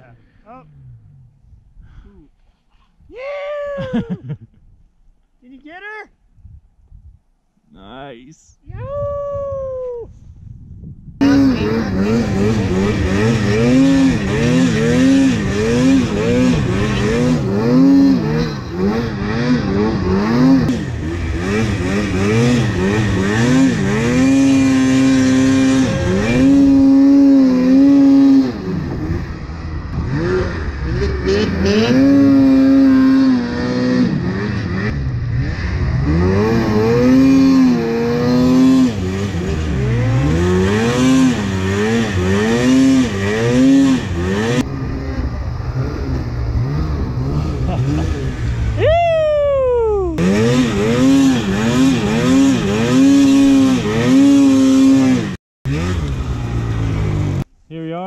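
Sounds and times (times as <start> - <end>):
snowmobile engine revving: 11.2 - 57.5.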